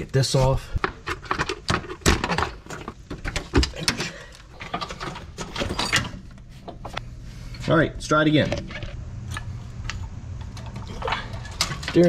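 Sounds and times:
hand tools clicking on metal parts: 10.5 - 12.0.

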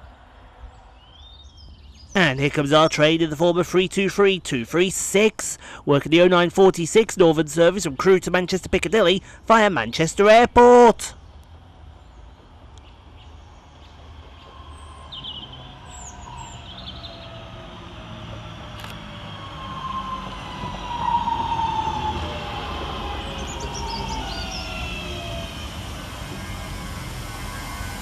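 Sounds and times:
birds chirping: 0.6 - 18.6, 19.2 - 26.5
wheels rumbling on rail: 11.2 - 28.0
electric train motors whining: 12.6 - 28.0.

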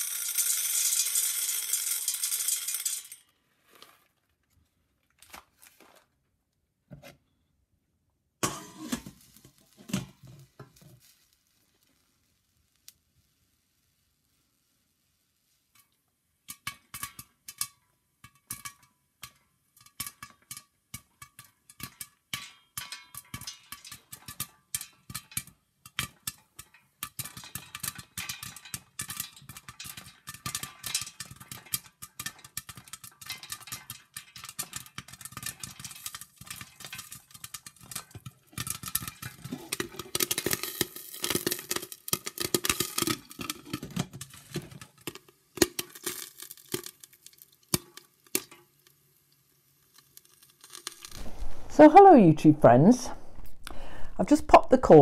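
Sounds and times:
popcorn popping in a pot: 0.0 - 3.3, 8.4 - 12.1, 15.7 - 51.2.

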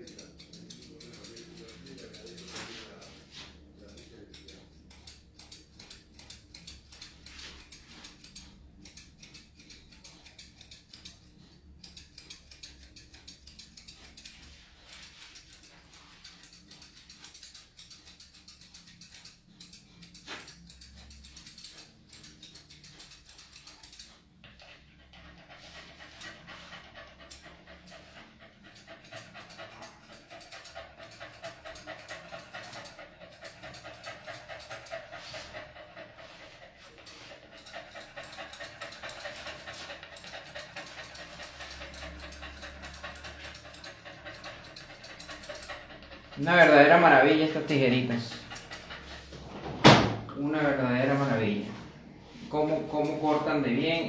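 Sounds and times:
dog panting: 0.0 - 54.0
scissors snipping: 11.8 - 24.1.

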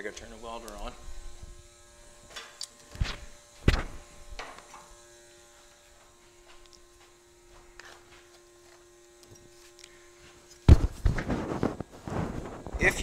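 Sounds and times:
welder electrical hum: 0.0 - 13.0.

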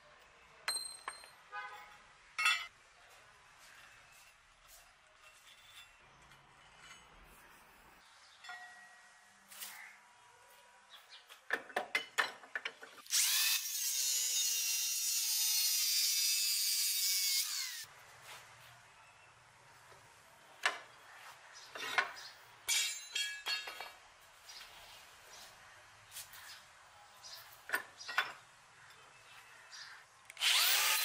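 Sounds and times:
angle grinder cutting metal: 13.1 - 17.9, 30.4 - 31.0.

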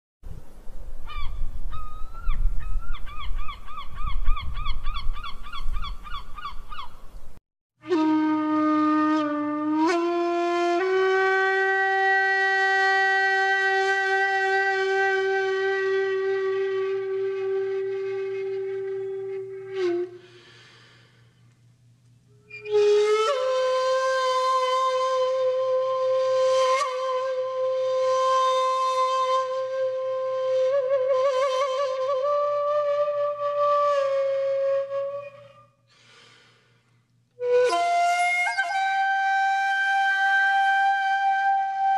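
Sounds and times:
low rumbling wind: 0.3 - 7.4
flute-like held notes: 7.8 - 21.1, 22.3 - 35.9, 37.4 - 41.9.

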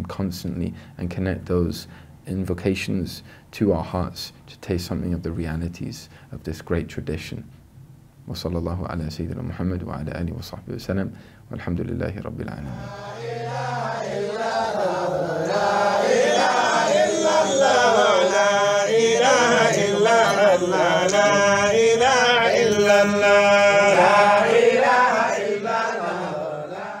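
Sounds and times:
chanted vocal music: 12.6 - 27.0.

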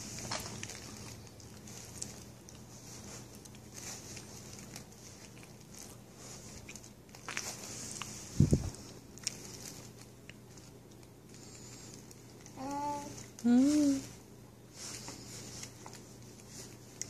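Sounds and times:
small animal chewing: 0.0 - 12.6.

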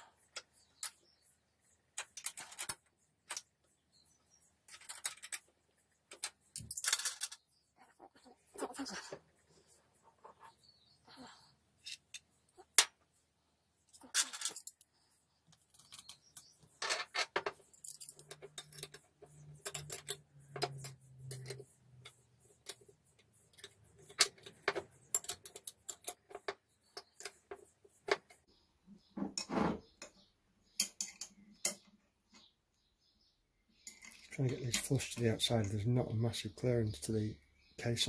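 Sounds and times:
light metallic clicks and clinks: 33.8 - 35.8.

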